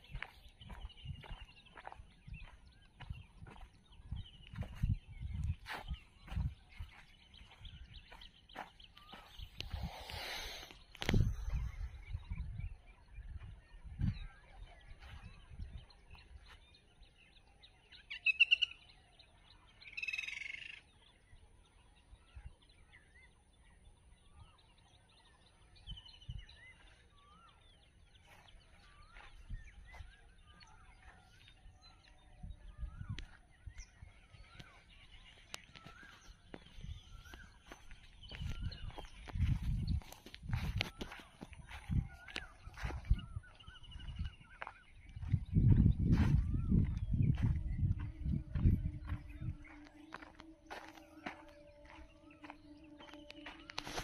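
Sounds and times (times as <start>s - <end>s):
birds chirping and whistling: 0.0s - 54.0s
harsh bird calls: 32.6s - 54.0s.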